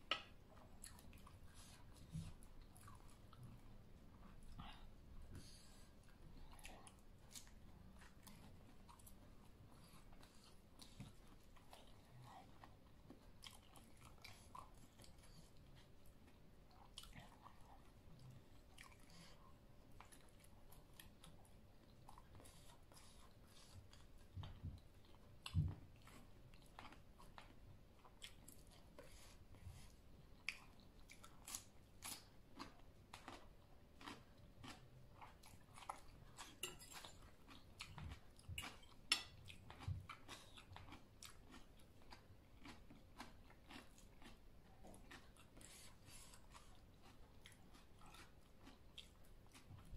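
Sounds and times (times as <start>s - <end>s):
close chewing with mouth clicks: 0.0s - 49.9s.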